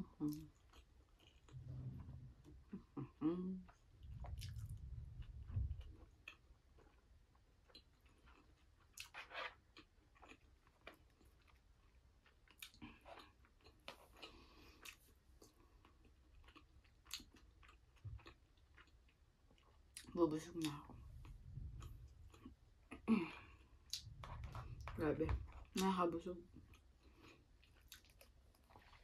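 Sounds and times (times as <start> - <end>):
soft chewing: 0.0 - 29.0
dull low bump: 3.9 - 6.1, 20.9 - 22.5, 24.0 - 25.7.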